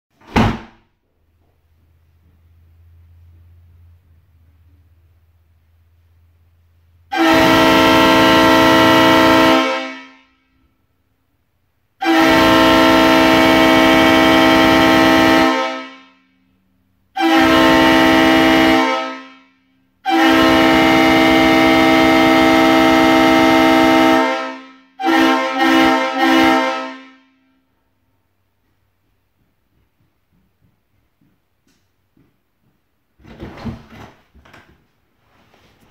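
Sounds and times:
air horn blasts: 0:07.0 - 0:10.8, 0:12.0 - 0:27.7.

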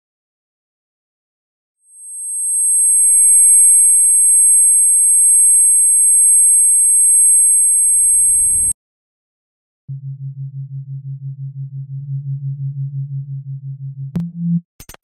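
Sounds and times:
high-pitched electronic sine tones: 0:01.9 - 0:08.8, 0:14.2 - 0:14.7
low rumble: 0:09.9 - 0:14.6.

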